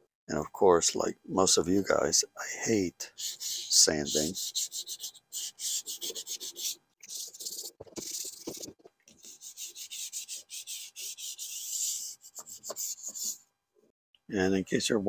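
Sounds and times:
hand sanding with sandpaper: 3.1 - 13.4.

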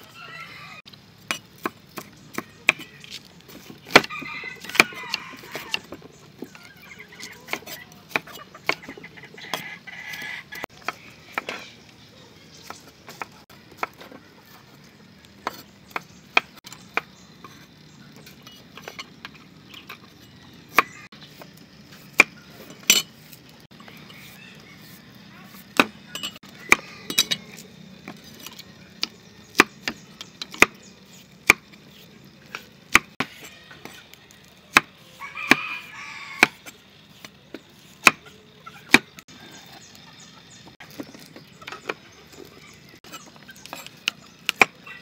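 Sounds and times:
cleaver chopping on wooden block: 3.9 - 4.1, 24.8 - 26.0, 29.0 - 30.8, 31.4 - 31.7, 32.5 - 34.0, 34.7 - 34.9, 36.4 - 38.2, 38.9 - 39.1, 43.6 - 44.8.

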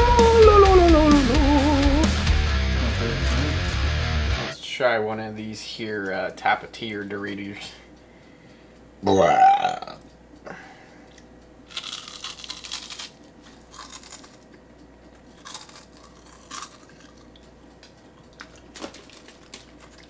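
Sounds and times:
chip crunching and chewing: 11.1 - 20.0.

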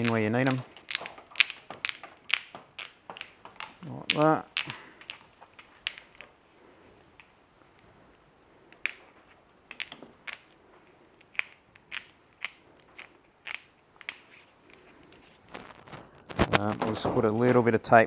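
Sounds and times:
plastic conduit clicking: 0.0 - 6.3
handling noise: 0.0 - 18.0.

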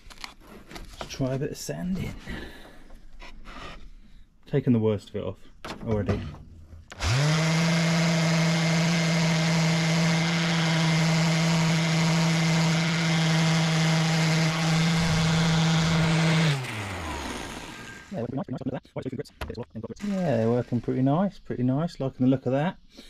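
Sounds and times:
orbital sander running: 6.9 - 18.2, 20.0 - 21.2.

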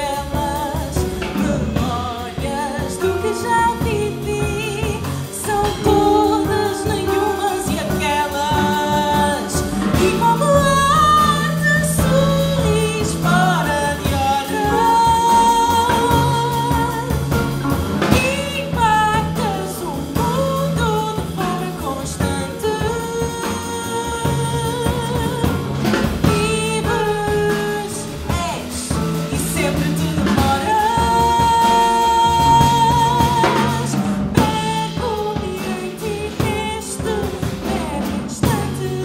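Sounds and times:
jazz band playing: 0.0 - 39.0
woman singing with vibrato: 0.0 - 39.0.

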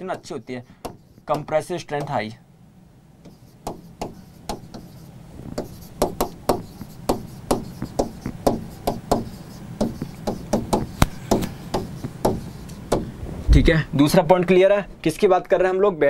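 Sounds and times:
pen tapping and scraping on board: 0.0 - 2.2, 3.2 - 13.1.

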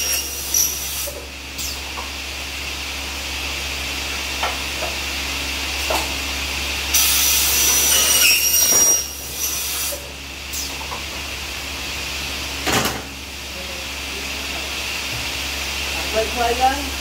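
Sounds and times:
saw screeching through metal: 0.0 - 1.0, 7.5 - 9.7
circular saw whining: 6.9 - 9.7.

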